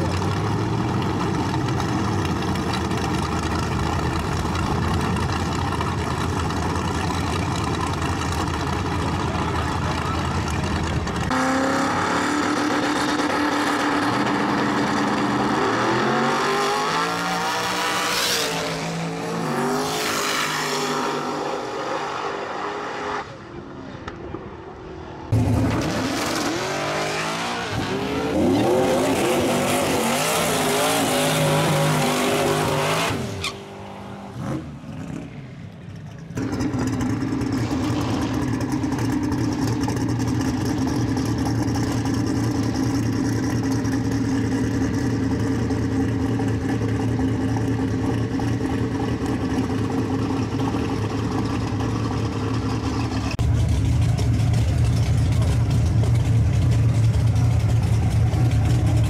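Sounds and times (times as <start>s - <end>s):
drag car engines accelerating: 0.0s - 59.0s
car engine revving: 25.3s - 35.3s
tire squeal: 28.6s - 34.3s.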